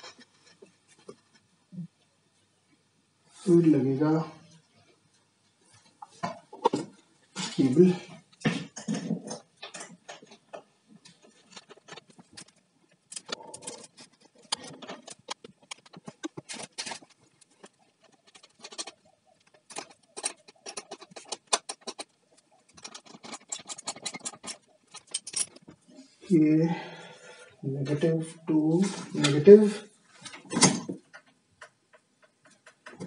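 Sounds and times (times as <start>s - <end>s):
metal parts clicking and clinking: 11.5s - 25.8s.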